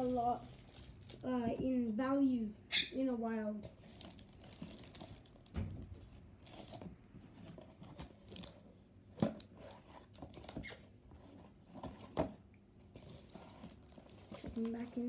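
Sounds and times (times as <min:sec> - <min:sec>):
light crunching of plastic wrap: 0:00.0 - 0:01.8, 0:03.5 - 0:08.8, 0:12.8 - 0:15.0.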